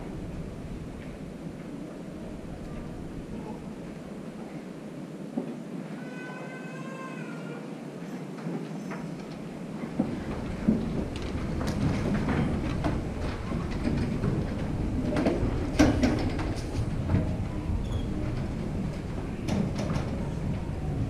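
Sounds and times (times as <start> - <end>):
wooden pews knocking and creaking: 9.0 - 21.0.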